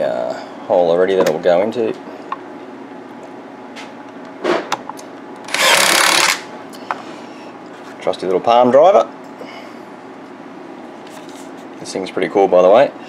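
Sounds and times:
palm driver running: 0:05.4 - 0:06.5.

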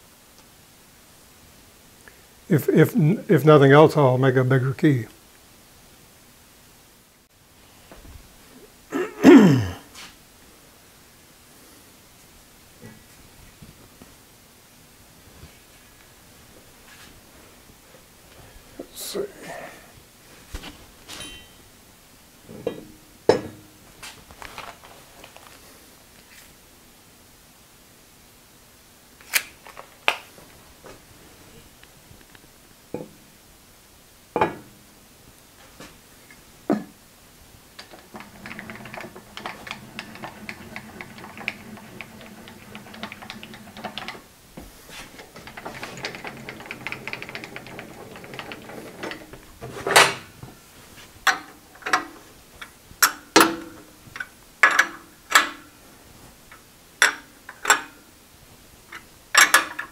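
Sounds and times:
sharp metal clanks: 0:21.2 - 0:21.6
clicks and knocks: 0:37.8 - 0:44.3, 0:45.2 - 0:50.3.

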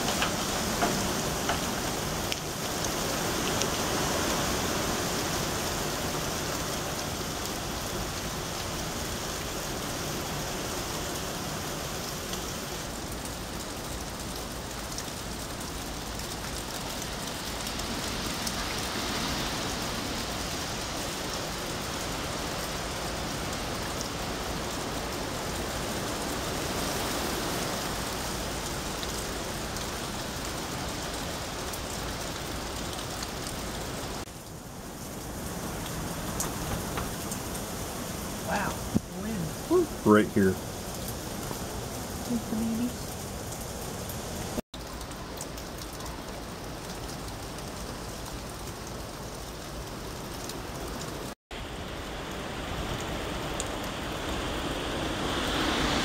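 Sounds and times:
rain falling on grass and cars: 0:00.0 - 0:56.0.

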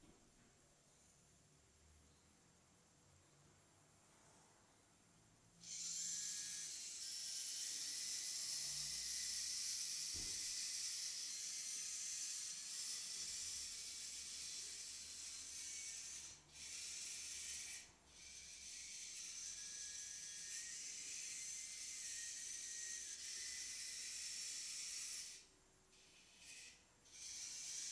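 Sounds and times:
robot servos whirring: 0:05.6 - 0:25.4, 0:26.0 - 0:27.9.

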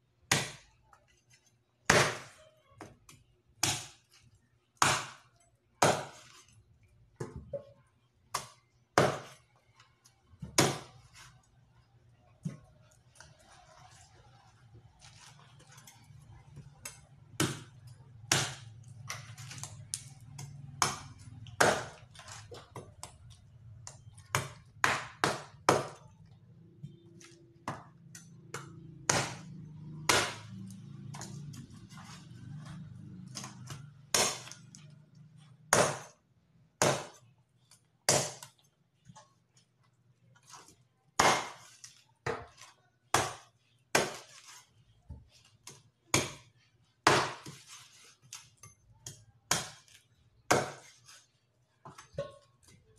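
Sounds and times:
cleaver chopping on wooden board: 0:28.5 - 0:31.2, 0:47.1 - 0:47.6, 0:50.5 - 0:50.9.

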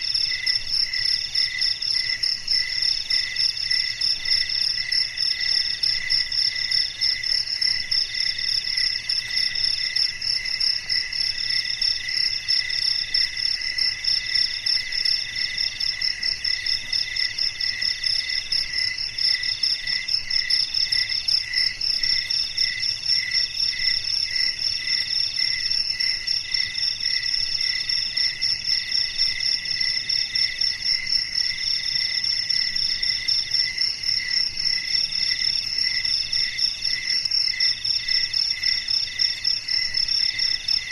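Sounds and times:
lower pulsing insect trill: 0:00.0 - 0:40.9.

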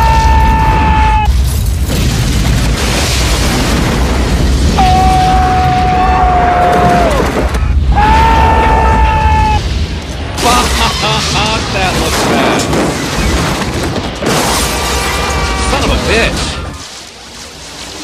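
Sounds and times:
fireball explosion rumbling: 0:00.0 - 0:17.6
long held screams: 0:07.9 - 0:09.6.

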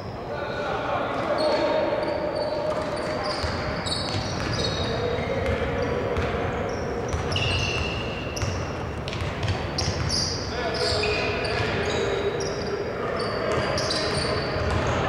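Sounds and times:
players' voices: 0:00.0 - 0:15.0
sneakers squeaking: 0:01.3 - 0:15.0
basketball bouncing: 0:07.1 - 0:07.4, 0:08.4 - 0:10.2, 0:14.6 - 0:15.0.

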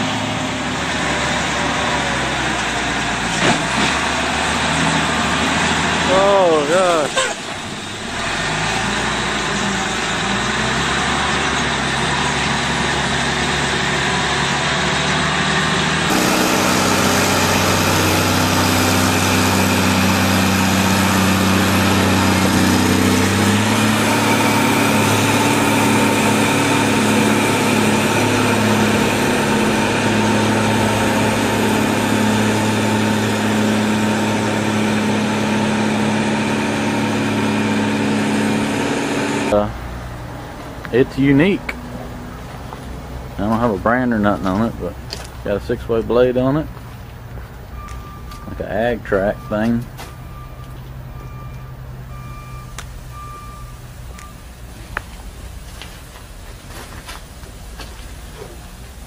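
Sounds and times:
diesel engines of heavy machines: 0:00.0 - 0:59.0.

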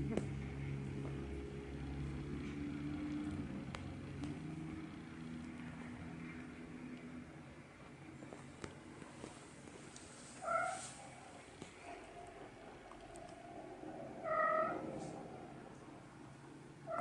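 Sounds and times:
cat purring: 0:08.2 - 0:17.0.

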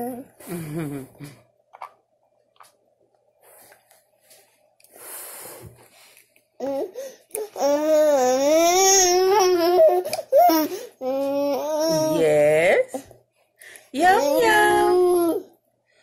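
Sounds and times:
toddler babbling: 0:07.6 - 0:12.2, 0:14.2 - 0:15.5.

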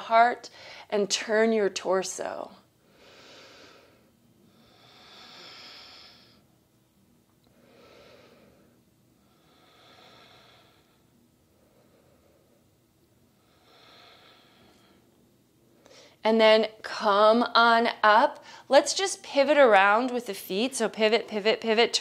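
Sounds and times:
woman breathing deeply: 0:00.5 - 0:00.9, 0:02.8 - 0:06.5, 0:07.5 - 0:15.1, 0:15.7 - 0:16.2, 0:18.4 - 0:18.7.

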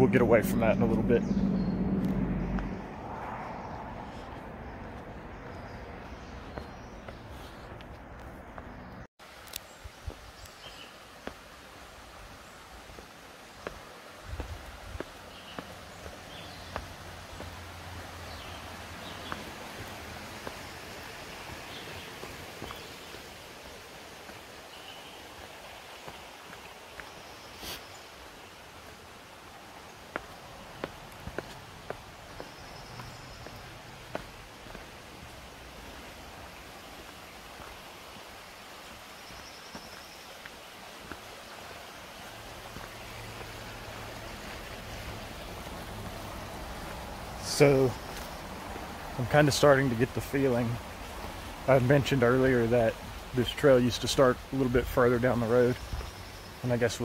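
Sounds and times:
low rumble: 0:00.0 - 0:05.4
distant highway traffic hiss: 0:00.0 - 0:08.2, 0:10.4 - 0:57.0
highway truck traffic drone: 0:00.0 - 0:09.1, 0:42.3 - 0:56.8
bird chirps: 0:00.6 - 0:02.8
footsteps on trail: 0:01.2 - 0:51.6, 0:52.9 - 0:53.3, 0:54.2 - 0:56.6.

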